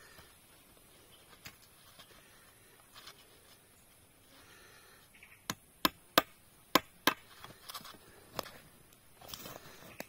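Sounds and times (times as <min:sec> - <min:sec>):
axe chopping wood: 0:05.5 - 0:07.3.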